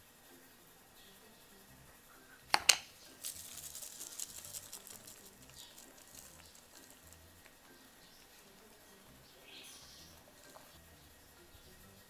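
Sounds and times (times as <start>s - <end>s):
seasoning flakes pattering on rice: 2.5s - 10.8s.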